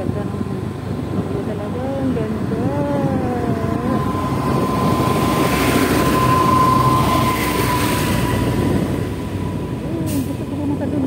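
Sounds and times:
truck passing with road noise: 0:00.0 - 0:11.0
steady whine: 0:01.4 - 0:09.8.

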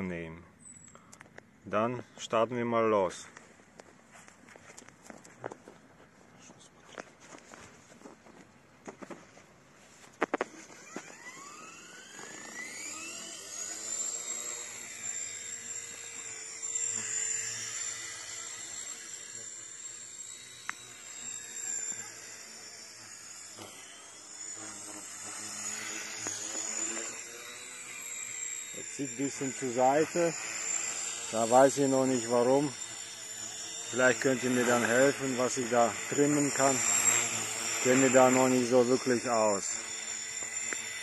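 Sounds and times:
toy helicopter motor whining: 0:10.1 - 0:41.0.

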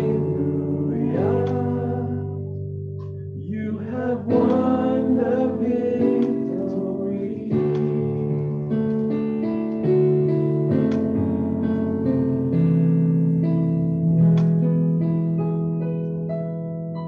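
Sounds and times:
man singing: 0:00.0 - 0:02.5, 0:03.4 - 0:08.1
sustained keyboard chords: 0:00.0 - 0:17.0.

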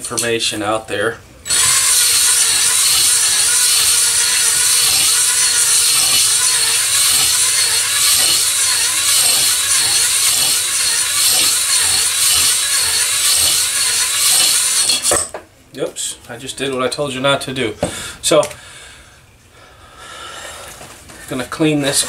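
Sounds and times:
electric drill whine: 0:01.4 - 0:15.2
hone stones scraping metal bore: 0:01.4 - 0:15.3.

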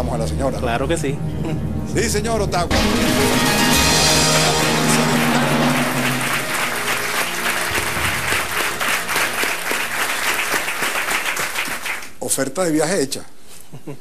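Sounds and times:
quiz show music: 0:01.9 - 0:12.1
studio audience applauding: 0:02.8 - 0:12.2.

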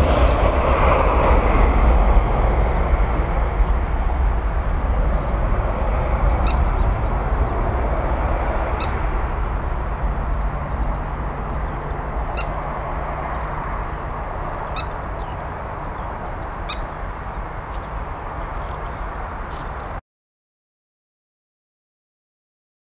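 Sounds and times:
jet engine roar: 0:00.0 - 0:20.0
high bird calls: 0:05.3 - 0:19.8.

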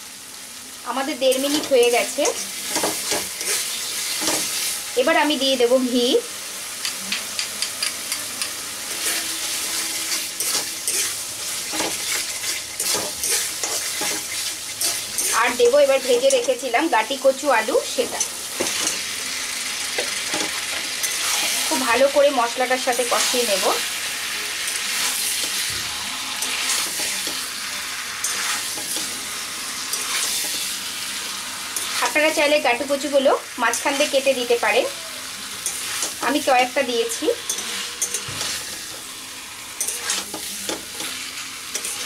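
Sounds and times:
spice paste sizzling: 0:00.0 - 0:42.0
spatula scraping pan: 0:01.3 - 0:04.8, 0:08.9 - 0:16.8, 0:20.0 - 0:22.3, 0:22.9 - 0:32.3, 0:35.6 - 0:42.0.

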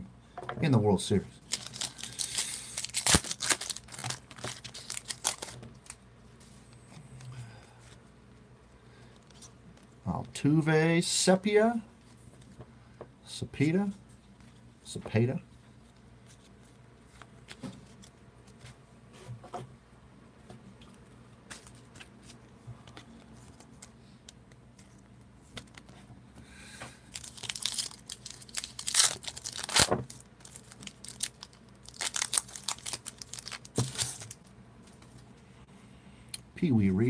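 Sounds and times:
foil pack crinkling and tearing: 0:01.4 - 0:06.0, 0:27.1 - 0:34.5
cards slipped into plastic sleeve: 0:01.5 - 0:06.0.

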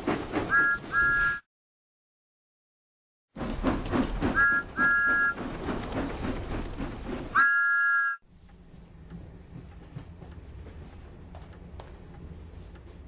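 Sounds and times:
steam locomotive chuffing: 0:00.0 - 0:01.4, 0:03.4 - 0:07.8
steam whistle toots: 0:00.5 - 0:01.4, 0:04.3 - 0:05.4, 0:07.4 - 0:08.2.

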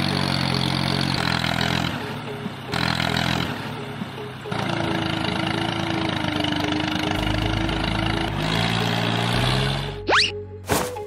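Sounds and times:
engine humming steadily: 0:00.0 - 0:11.0.

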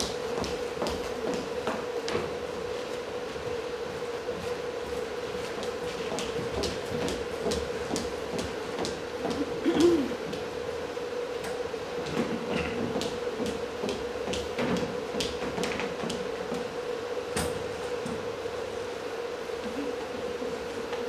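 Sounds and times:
steady hum: 0:00.0 - 0:21.0.

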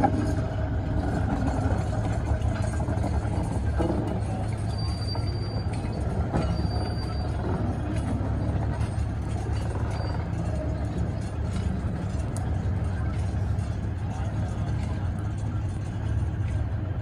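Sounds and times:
diesel locomotive engine drone: 0:00.0 - 0:17.0
rail rumble: 0:00.0 - 0:17.0
faint high-pitched squeal: 0:04.2 - 0:07.8.

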